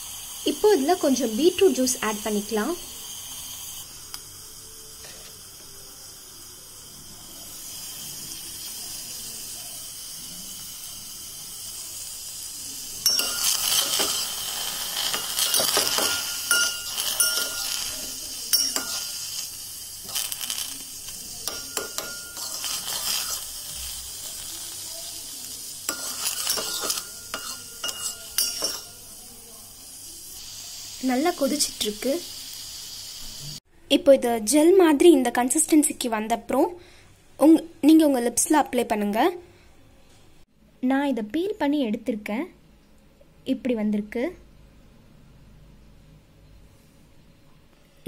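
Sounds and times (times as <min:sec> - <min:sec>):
pot simmering hiss: 0:00.0 - 0:39.6
metallic clinks: 0:13.0 - 0:14.1, 0:15.2 - 0:17.9, 0:18.5 - 0:19.2
spoon scraping a steel pot: 0:13.0 - 0:19.4, 0:20.0 - 0:23.6, 0:25.9 - 0:29.0.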